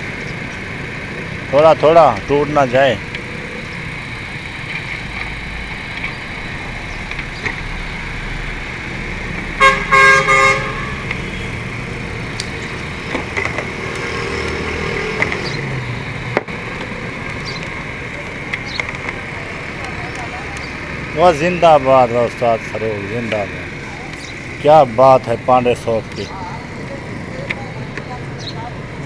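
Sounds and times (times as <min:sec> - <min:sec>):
traffic hum: 0:00.0 - 0:29.0
vehicle horn toots: 0:09.6 - 0:11.6.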